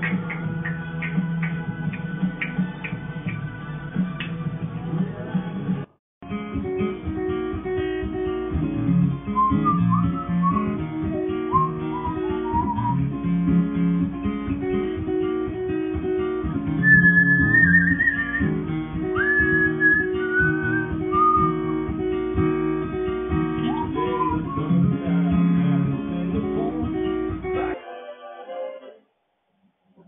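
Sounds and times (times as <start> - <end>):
guitar-led song: 0.0 - 29.0
parrot whistling: 9.4 - 13.0, 16.8 - 18.5, 19.2 - 21.8, 23.6 - 24.7.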